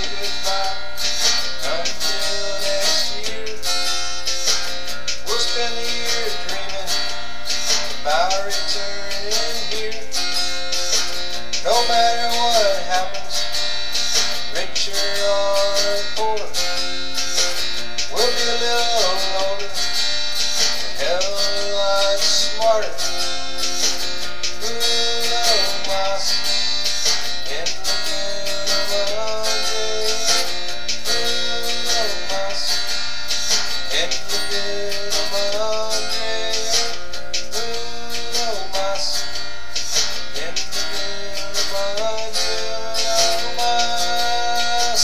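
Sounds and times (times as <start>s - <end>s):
acoustic guitar song: 0.0s - 45.0s.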